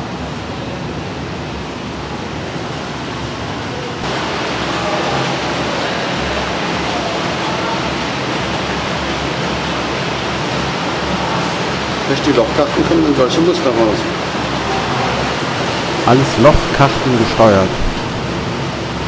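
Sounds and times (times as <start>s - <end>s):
factory machinery din: 4.0s - 9.4s, 10.2s - 19.0s.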